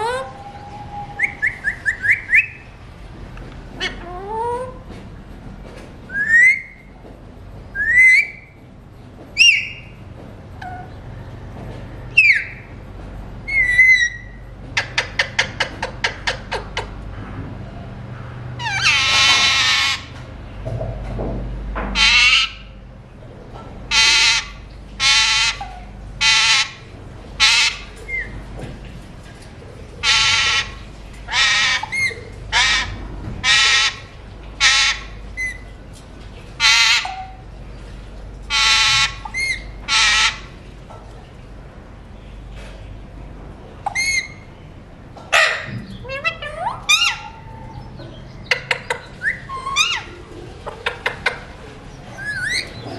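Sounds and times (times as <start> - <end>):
parakeet whistling calls: 0.0 - 2.6, 6.1 - 6.8, 7.8 - 8.5, 13.5 - 14.4, 48.5 - 50.1, 52.1 - 52.8
parakeet harsh squawk: 18.6 - 20.1, 22.0 - 22.6, 23.9 - 26.8, 27.4 - 28.3, 30.0 - 30.7, 31.3 - 34.0, 34.6 - 35.6, 36.6 - 37.4, 38.5 - 40.5, 45.3 - 47.8.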